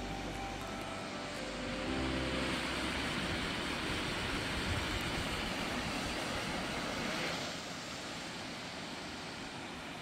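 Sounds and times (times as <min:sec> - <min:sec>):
waterfall and stream rushing: 0:00.0 - 0:10.0
wind rumble on microphone: 0:03.1 - 0:07.3.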